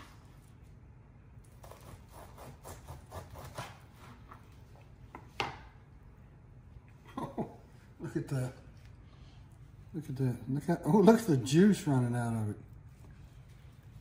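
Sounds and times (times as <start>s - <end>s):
knife slicing ribs: 1.4s - 4.3s.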